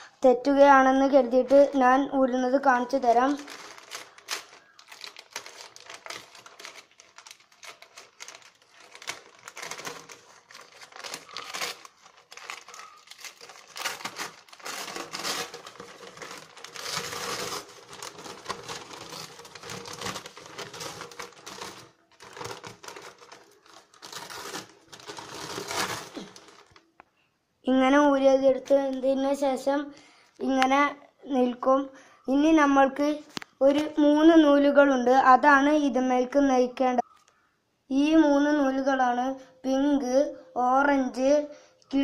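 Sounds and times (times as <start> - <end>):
newspaper crinkling and rustling: 2.9 - 26.9.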